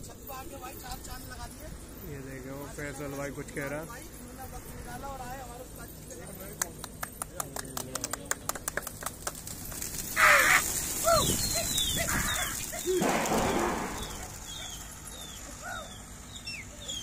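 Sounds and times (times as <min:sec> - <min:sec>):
hand claps: 0:06.4 - 0:09.6
pigeon wingbeats rushing: 0:06.9 - 0:15.6.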